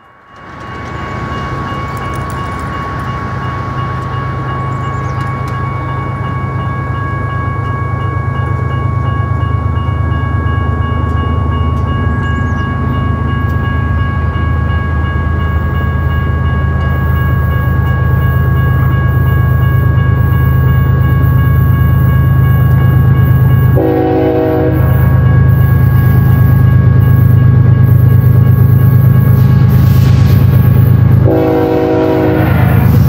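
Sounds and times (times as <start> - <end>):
high ringing tones: 0.0 - 29.7
diesel locomotive rumble: 0.0 - 33.0
train horn blast: 23.8 - 25.1, 31.2 - 33.0.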